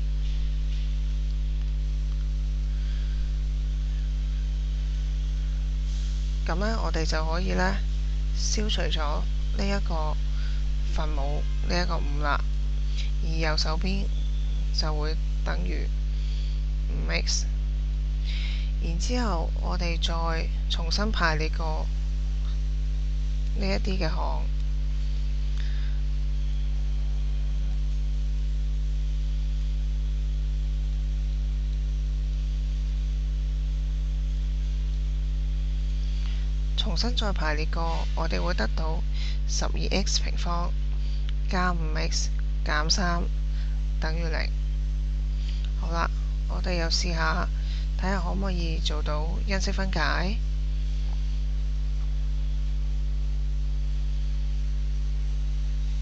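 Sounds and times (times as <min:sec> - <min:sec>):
electrical mains hum: 0:00.0 - 0:56.0.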